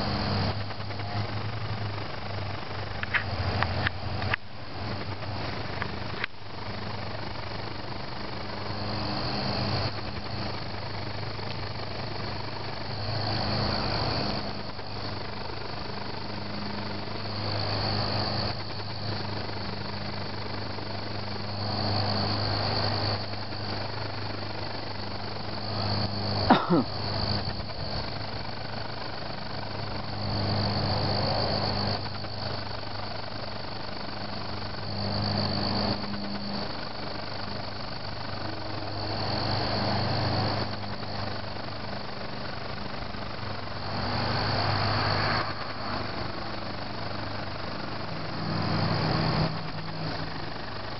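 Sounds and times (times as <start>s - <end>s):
crickets chirping: 0.0s - 50.9s
low mechanical hum: 0.0s - 50.9s.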